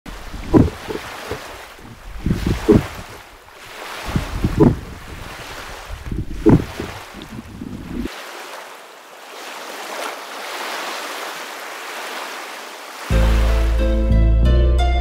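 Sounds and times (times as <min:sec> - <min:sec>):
low surging thumps: 0:00.1 - 0:03.3, 0:04.1 - 0:05.2, 0:06.0 - 0:08.1
muffled underwater water noise: 0:00.1 - 0:13.7.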